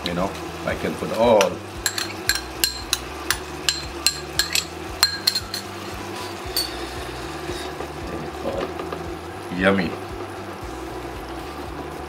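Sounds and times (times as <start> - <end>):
metal spoon clinking against pan: 1.4 - 6.9.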